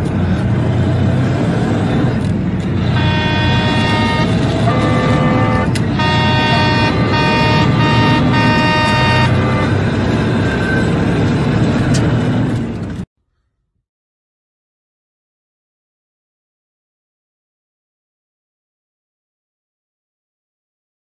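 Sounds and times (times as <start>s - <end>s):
moving truck road rumble: 0.0s - 13.1s
truck air horn honking: 2.8s - 10.8s.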